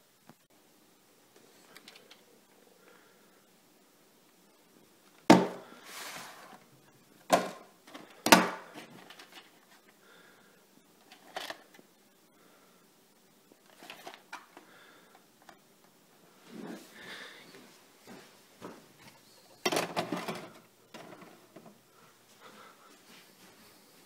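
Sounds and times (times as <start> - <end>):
plastic case clacks: 19.6 - 21.7.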